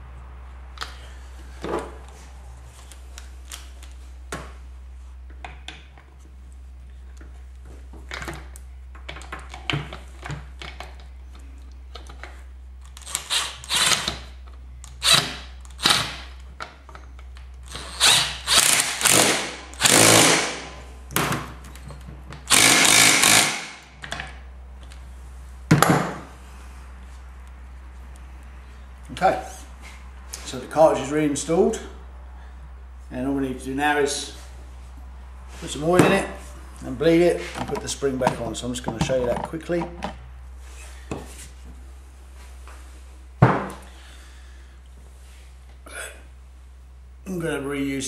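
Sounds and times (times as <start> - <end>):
cordless drill bursts: 13.1 - 14.1, 15.0 - 16.2, 17.7 - 20.6, 22.5 - 23.8.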